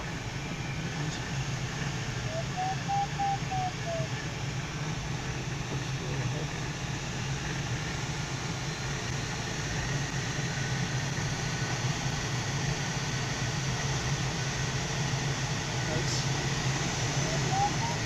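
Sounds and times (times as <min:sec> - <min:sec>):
rush of air over glider canopy: 0:03.7 - 0:18.0.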